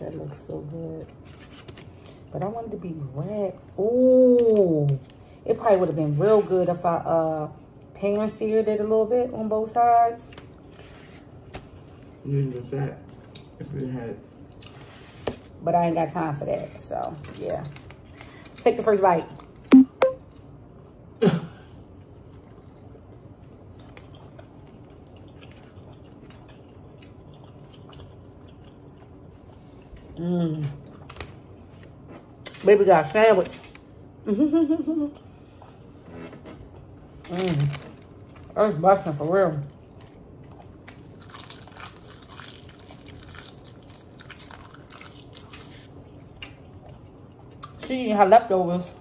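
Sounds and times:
person chewing food: 21.7s - 30.2s, 30.8s - 32.6s, 39.7s - 47.8s.

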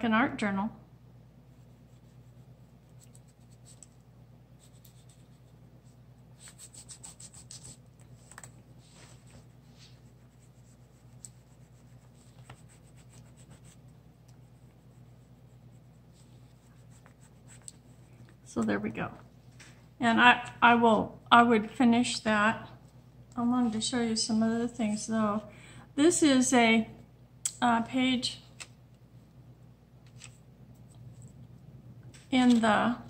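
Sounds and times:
low steady hum: 0.0s - 33.0s
pastel scratching on paper: 1.5s - 3.9s, 4.6s - 7.8s, 8.8s - 18.1s.

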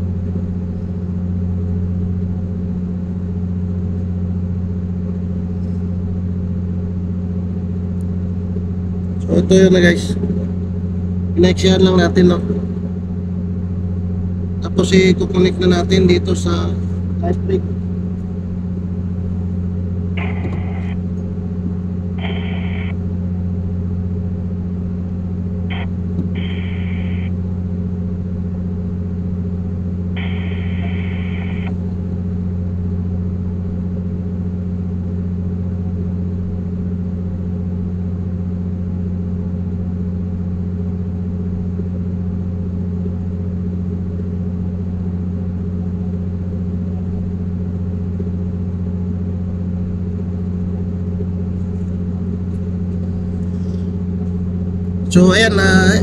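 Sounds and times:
ship machinery drone: 0.0s - 56.0s.

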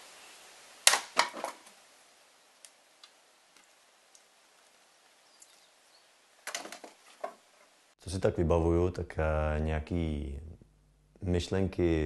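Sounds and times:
wood clattering: 0.9s - 1.8s, 6.4s - 7.5s.

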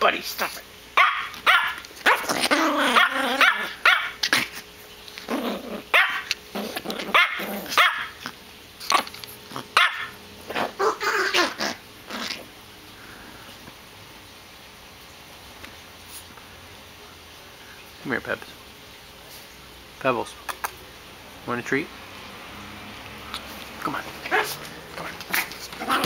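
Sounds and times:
small dog growling and barking: 0.3s - 12.6s, 23.2s - 26.0s.

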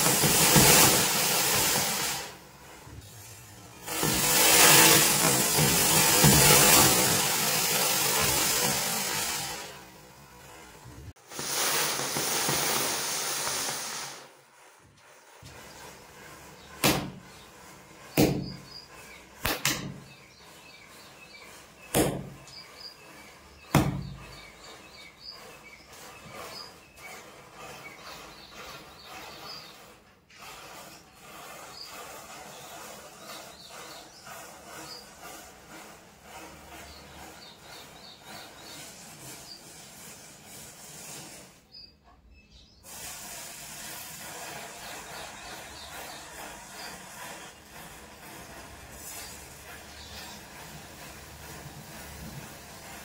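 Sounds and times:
match heads flaring hiss: 3.8s - 9.9s, 11.2s - 14.4s, 42.8s - 52.0s
sharp pops: 19.4s - 20.1s.

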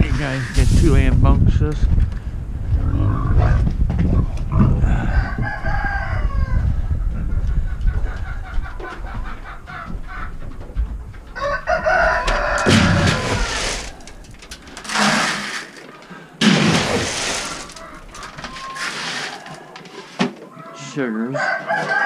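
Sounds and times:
chickens clucking: 2.7s - 15.0s, 15.6s - 22.0s
rooster crowing: 4.8s - 6.7s, 11.4s - 14.2s, 20.6s - 22.0s.

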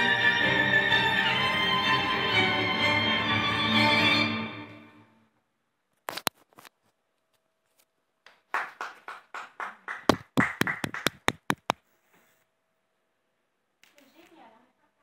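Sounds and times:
violin music: 0.0s - 5.2s
hand claps: 8.2s - 11.8s.

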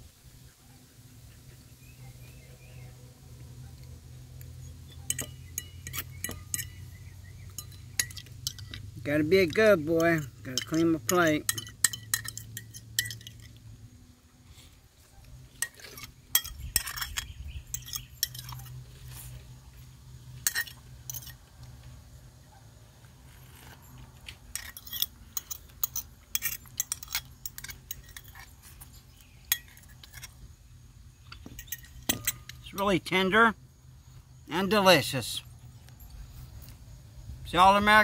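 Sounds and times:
fork scraping on plate: 15.5s - 19.4s.

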